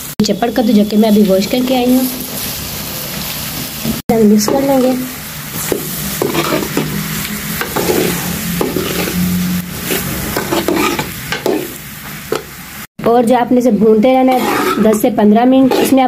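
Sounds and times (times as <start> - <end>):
frying sizzle: 0.0 - 16.0
metal spoon scraping a pan: 4.4 - 12.6, 14.1 - 16.0.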